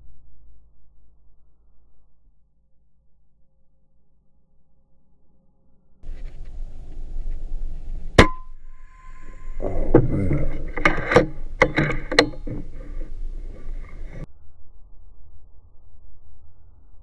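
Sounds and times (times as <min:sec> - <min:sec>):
metallic clicks: 0:08.2 - 0:14.3.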